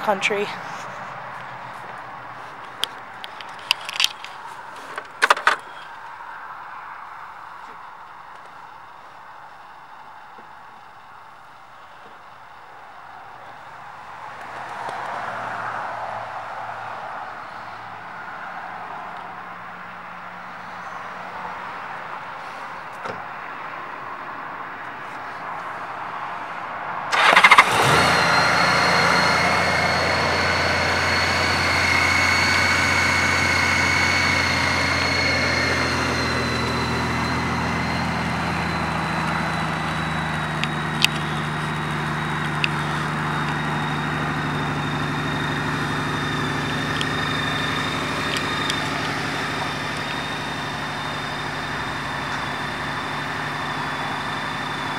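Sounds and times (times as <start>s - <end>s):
starter motor cranking: 27.1s - 50.4s
motorcycle engine idling: 27.1s - 54.9s.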